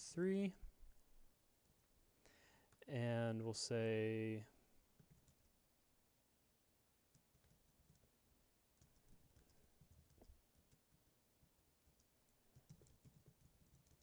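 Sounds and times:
faint keyboard typing: 0:01.6 - 0:02.0, 0:04.9 - 0:05.6, 0:07.0 - 0:14.0.

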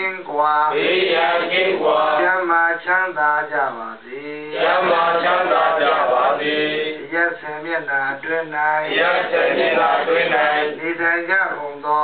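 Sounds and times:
voices chanting together: 0:00.7 - 0:02.6, 0:04.5 - 0:11.0.

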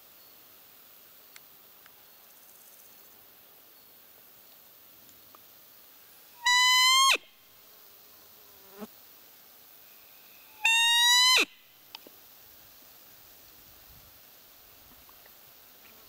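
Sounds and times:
high-pitched deer call squeaks: 0:06.4 - 0:07.3, 0:10.5 - 0:11.6.

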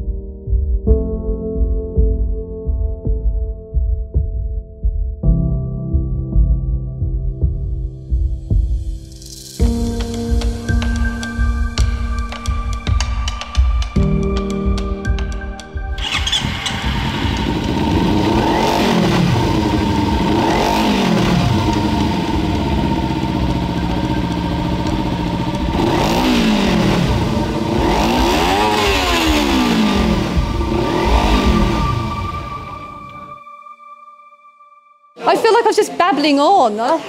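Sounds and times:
motorcycle engine revving: 0:15.1 - 0:33.4.

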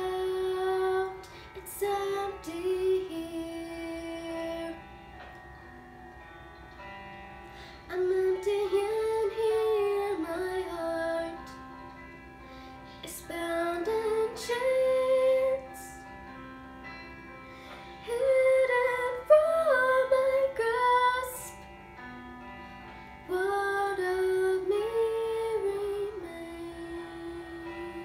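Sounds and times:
young woman singing: 0:00.0 - 0:04.9, 0:07.8 - 0:11.8, 0:13.0 - 0:16.1, 0:18.0 - 0:21.7, 0:23.2 - 0:28.0
soft held accompaniment: 0:00.0 - 0:28.0.

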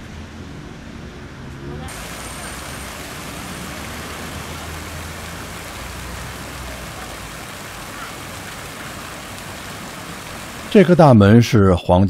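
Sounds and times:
traffic hum: 0:00.0 - 0:11.4
fountain water splashing: 0:01.9 - 0:11.2.

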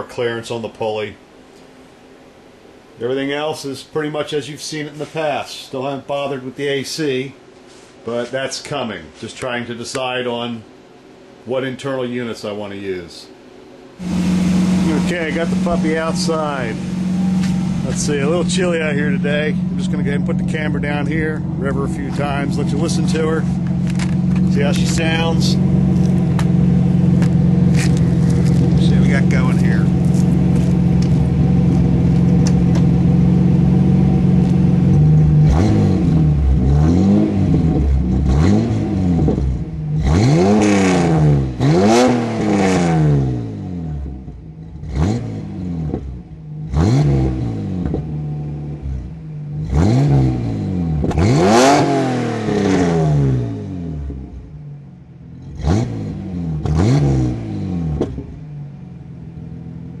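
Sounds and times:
car engine idling and revving: 0:13.4 - 1:00.0.

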